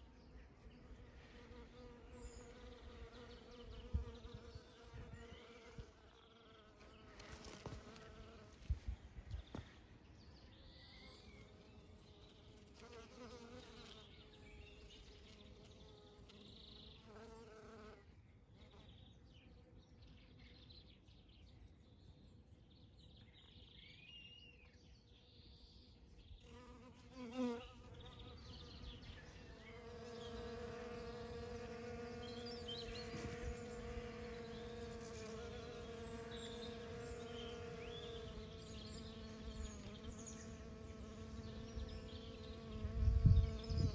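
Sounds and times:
honeybees buzzing: 0:11.2 - 0:18.0, 0:26.5 - 0:43.9.

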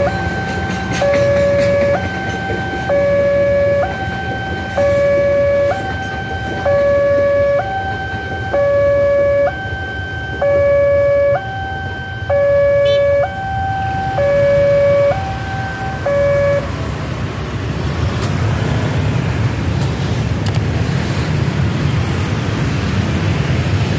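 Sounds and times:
level crossing two-tone alarm: 0:00.0 - 0:16.9
motorcycle engines rumbling: 0:00.0 - 0:23.9.

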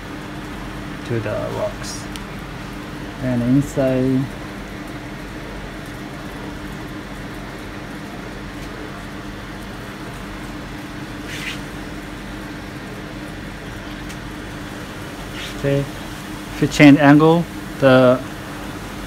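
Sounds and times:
low background hum with hiss: 0:00.0 - 0:19.0
soft scrape: 0:11.2 - 0:11.7.

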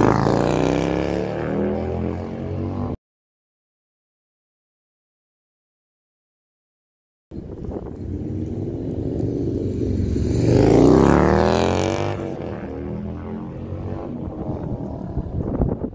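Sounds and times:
motorcycle engine passing by: 0:00.0 - 0:03.0, 0:07.4 - 0:15.9.

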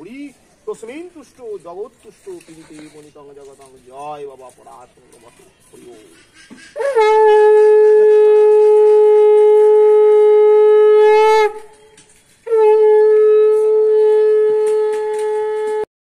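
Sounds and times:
conch shell blasts: 0:06.8 - 0:11.8, 0:12.5 - 0:15.9.

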